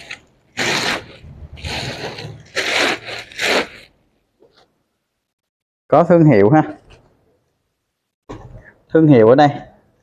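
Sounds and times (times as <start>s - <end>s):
fabric bag rustling: 0.0s - 4.6s.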